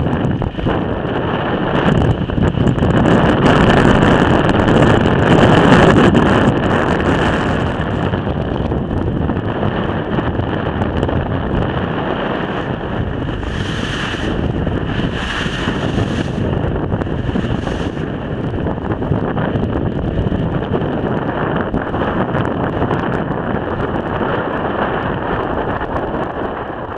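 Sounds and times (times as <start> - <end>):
wind buffeting microphone: 0.0 - 26.9
waves washing: 11.3 - 21.0.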